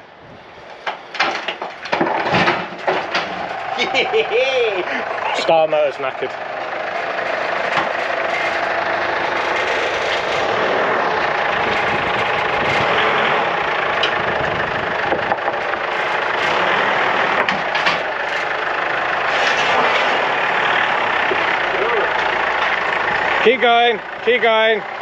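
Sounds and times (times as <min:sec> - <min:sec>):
pickup engine running: 0:00.0 - 0:25.0
sharp engine knocks: 0:00.7 - 0:04.2, 0:04.9 - 0:21.6.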